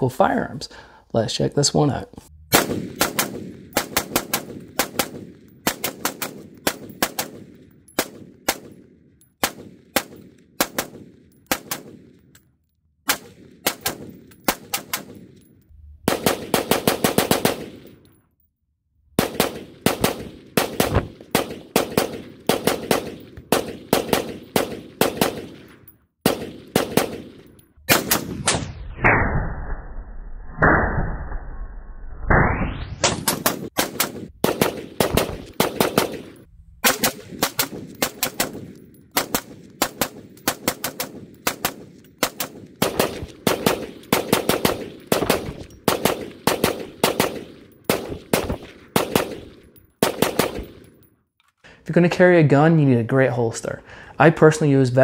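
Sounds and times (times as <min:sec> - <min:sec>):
rapid rifle shots: 0:02.5 - 0:12.2, 0:13.1 - 0:15.4, 0:16.1 - 0:17.9, 0:19.2 - 0:28.6, 0:33.1 - 0:51.0.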